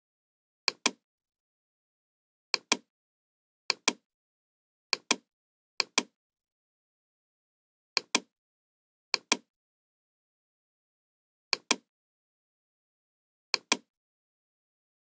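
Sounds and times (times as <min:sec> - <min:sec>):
computer mouse double-clicking: 0:00.7 - 0:01.0, 0:02.6 - 0:02.9, 0:03.7 - 0:04.0, 0:05.0 - 0:06.1, 0:08.0 - 0:08.3, 0:09.2 - 0:09.5, 0:11.6 - 0:11.9, 0:13.6 - 0:13.9.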